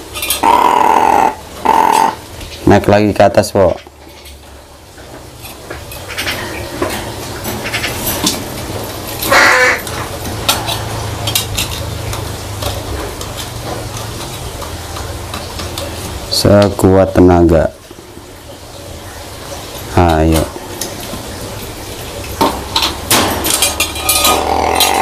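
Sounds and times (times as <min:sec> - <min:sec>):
crow cawing: 0:00.4 - 0:02.2, 0:09.3 - 0:10.0.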